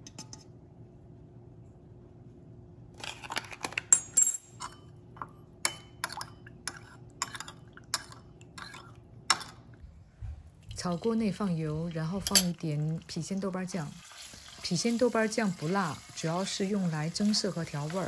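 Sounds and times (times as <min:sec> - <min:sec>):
metal spoon clinking ceramic bowl: 0:12.2 - 0:12.6.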